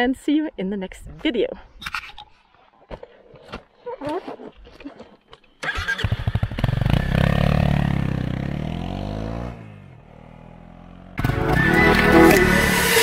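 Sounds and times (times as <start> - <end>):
motorcycle engine revving: 5.6 - 13.0
music: 11.2 - 13.0.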